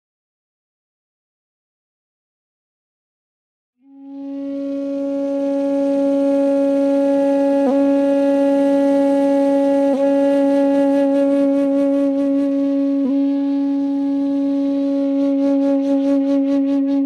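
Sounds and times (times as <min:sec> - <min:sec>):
long wind instrument note: 0:03.8 - 0:17.0.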